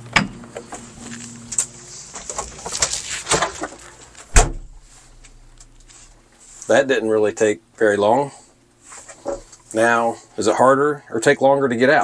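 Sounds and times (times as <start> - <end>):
door slamming shut: 4.3 - 4.8.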